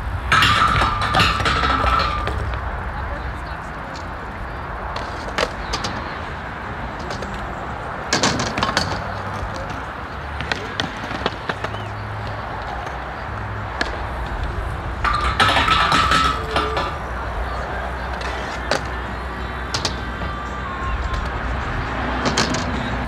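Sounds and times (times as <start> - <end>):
low rumble of skateboard wheels: 0.0 - 23.0
skateboards clacking on concrete: 0.0 - 23.0.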